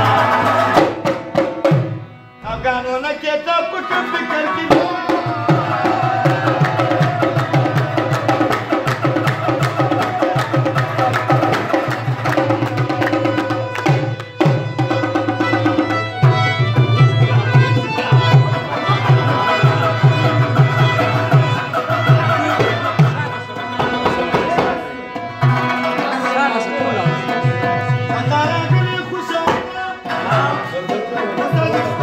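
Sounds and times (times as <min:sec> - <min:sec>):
harmonium melody: 0:00.0 - 0:09.8, 0:10.6 - 0:32.0
rubab: 0:00.0 - 0:32.0
tabla drums beating: 0:00.0 - 0:32.0
hands clapping: 0:06.6 - 0:14.4.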